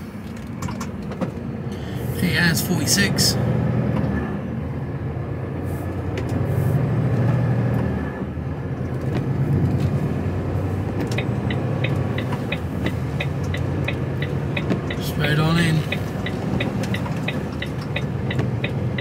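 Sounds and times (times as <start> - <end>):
diesel engine running: 0.0 - 19.0
turn signal ticking: 8.7 - 19.0.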